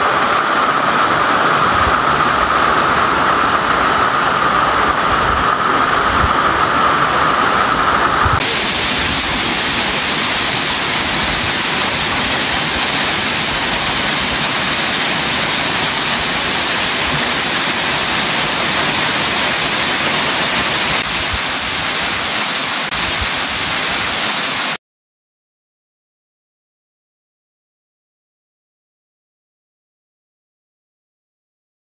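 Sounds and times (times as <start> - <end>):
waterfall rushing: 0.0 - 24.8.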